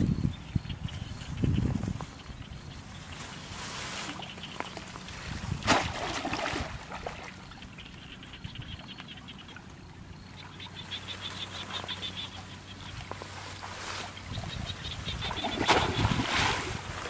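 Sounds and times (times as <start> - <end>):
water splashing and sloshing: 1.7 - 17.0
sharp splash: 5.6 - 7.4, 15.2 - 16.8.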